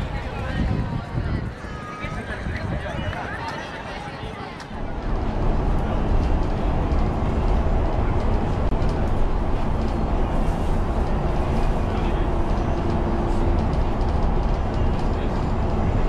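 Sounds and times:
vehicle low rumble: 4.5 - 16.0.

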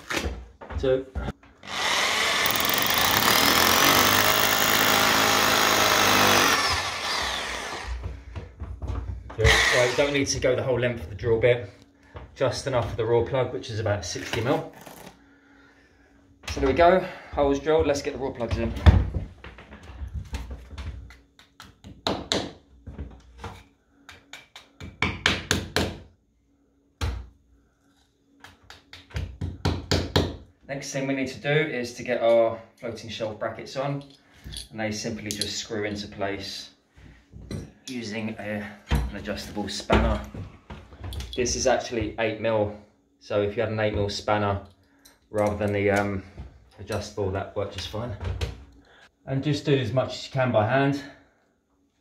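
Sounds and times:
hammer drill drilling into wall: 1.6 - 8.0, 9.4 - 10.2.

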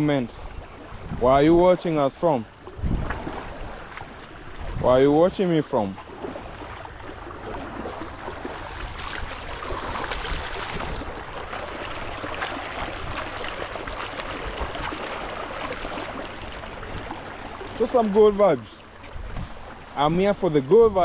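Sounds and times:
stream trickling over rocks: 6.4 - 20.7.

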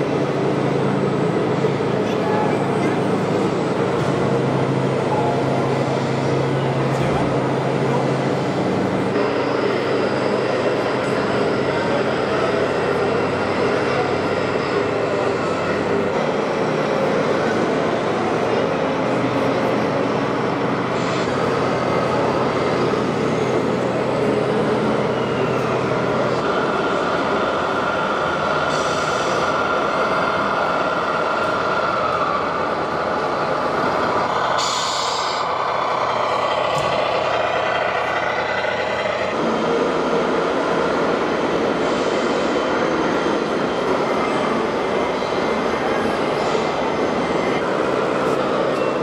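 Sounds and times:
model trucks engine-like noise: 0.0 - 49.0
air-brake hisses: 28.7 - 29.5, 34.6 - 35.5.

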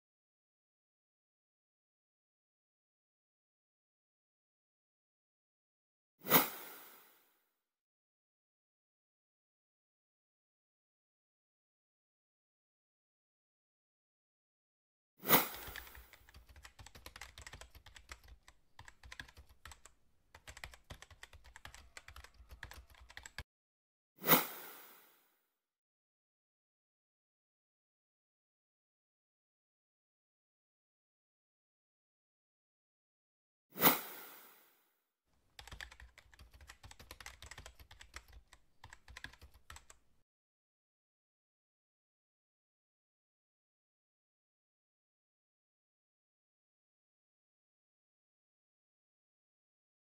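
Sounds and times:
keyboard typing clicks: 15.4 - 23.4, 35.6 - 40.0.

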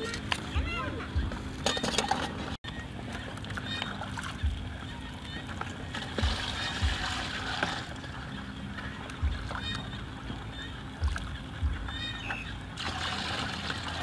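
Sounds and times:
dull low thumps: 0.5 - 1.6, 4.4 - 5.0, 6.1 - 7.4, 9.2 - 12.6
water pouring into plastic bucket: 6.0 - 8.0, 12.8 - 14.0.

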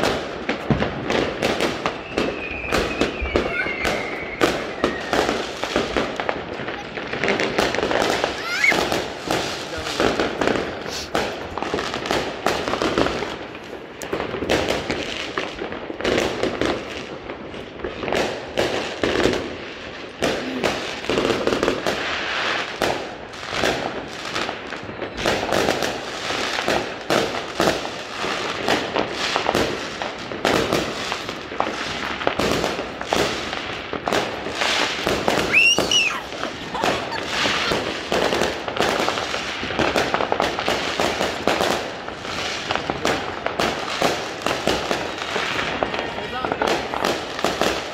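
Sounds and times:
fireworks bangs and crackles: 0.0 - 47.9
firework whistle: 1.7 - 9.5, 34.6 - 39.1.

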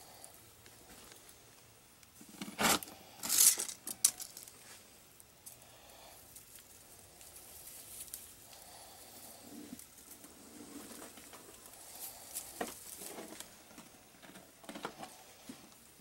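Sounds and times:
rustling and scratching on straw: 3.3 - 13.8.

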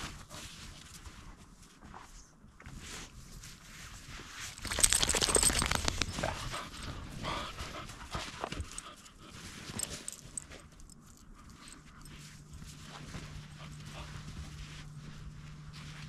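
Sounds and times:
dogs panting: 4.6 - 14.8.

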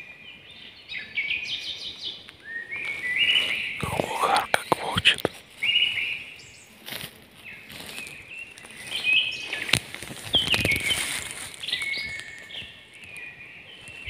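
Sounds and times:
footsteps on forest floor: 6.8 - 14.0
birds whistling calls: 7.5 - 14.0
twigs snapping: 9.6 - 13.3.

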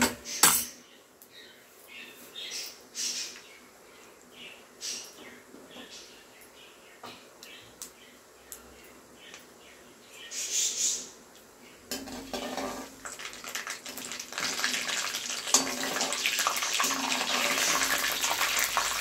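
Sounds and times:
seeds sizzling in hot oil: 11.9 - 19.0.

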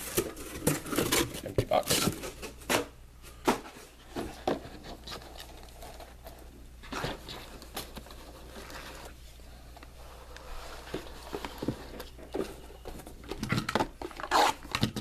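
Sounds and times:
cardboard boxes knocking and scraping: 0.0 - 5.2.

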